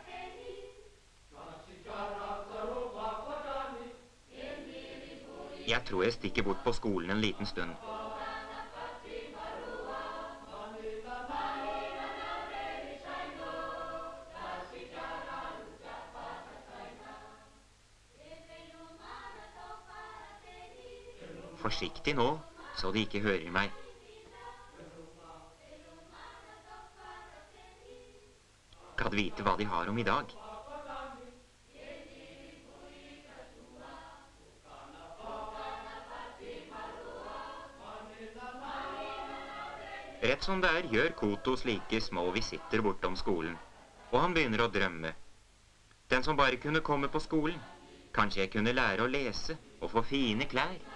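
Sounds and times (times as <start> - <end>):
choir singing: 0.0 - 44.9, 46.4 - 50.9.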